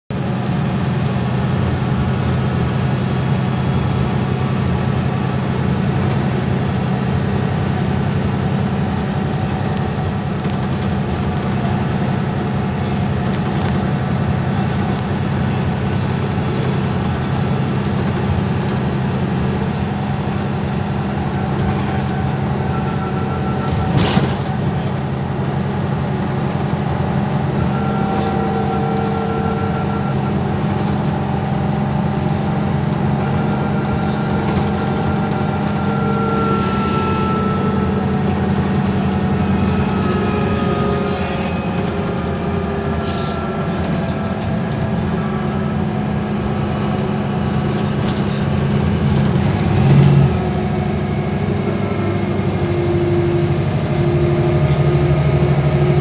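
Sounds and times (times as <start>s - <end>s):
bus engine drone: 0.0s - 56.0s
road and tyre noise: 0.1s - 56.0s.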